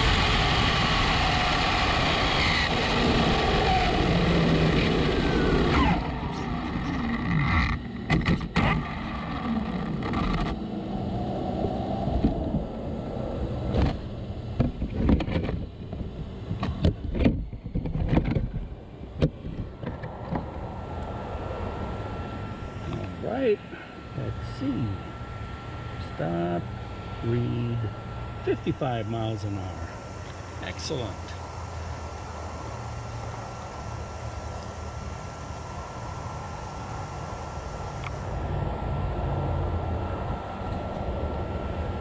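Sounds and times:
rc truck wind and tyre noise: 0.0s - 21.7s
electric motor whine: 0.0s - 42.0s.

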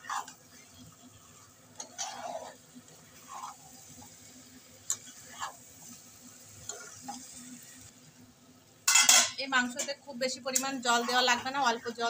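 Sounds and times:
spatula scraping pan: 0.0s - 4.2s, 4.9s - 6.0s, 6.6s - 7.4s, 10.6s - 12.0s.

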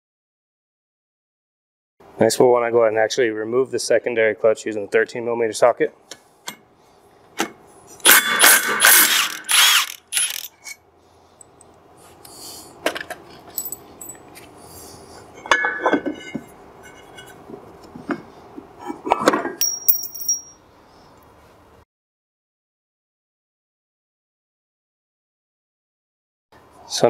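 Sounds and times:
impact wrench hammering: 19.6s - 20.6s.

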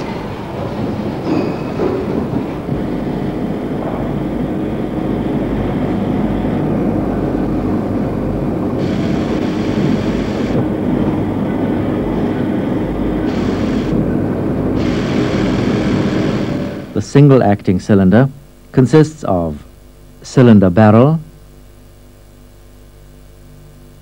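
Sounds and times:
pneumatic machinery rumbling: 0.0s - 17.0s
compressed air hissing: 8.8s - 17.0s.

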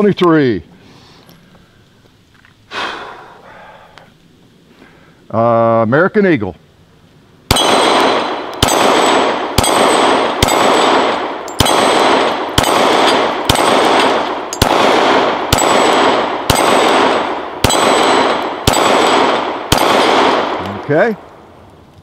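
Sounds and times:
pistol shots: 7.5s - 21.3s.

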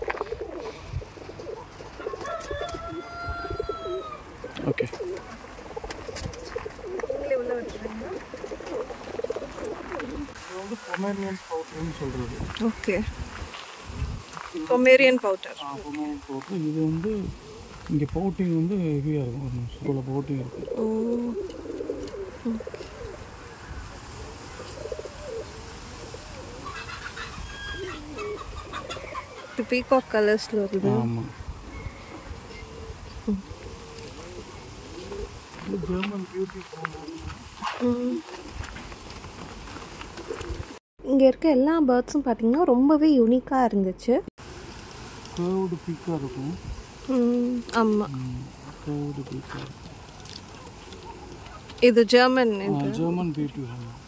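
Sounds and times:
pigeons cooing: 0.0s - 11.0s, 15.7s - 17.9s, 18.5s - 39.1s, 39.7s - 40.8s, 44.5s - 51.8s
long drawn-out bird call: 23.0s - 29.8s.

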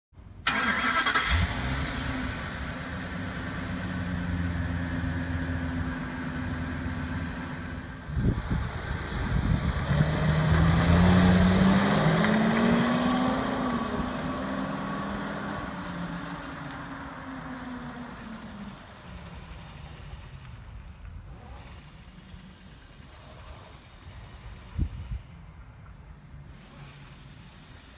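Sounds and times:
truck accelerating past: 0.5s - 20.3s.

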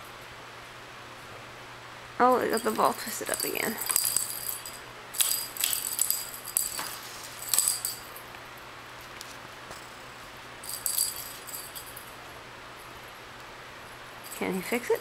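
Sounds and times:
jingle-bell toy ball rattling: 2.3s - 8.2s, 10.6s - 12.2s.

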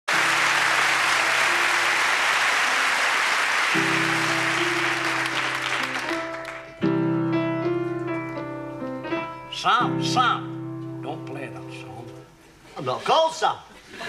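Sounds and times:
audience applauding: 0.0s - 6.8s
upright piano slow tune: 0.1s - 12.6s.

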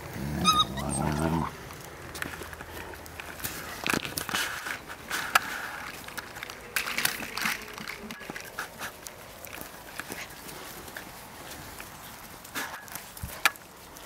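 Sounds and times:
puppy sounds: 0.0s - 1.6s.

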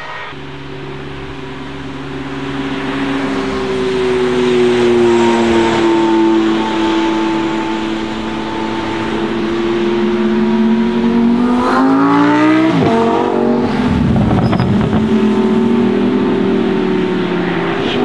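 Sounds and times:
car engines running: 0.0s - 18.0s
car accelerating past: 2.2s - 18.0s.

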